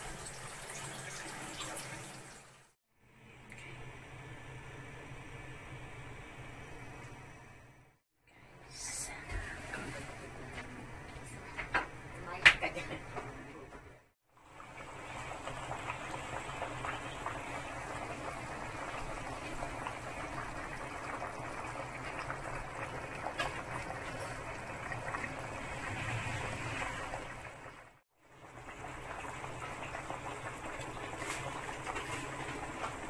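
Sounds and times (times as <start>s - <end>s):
broth boiling and bubbling: 9.2s - 33.0s.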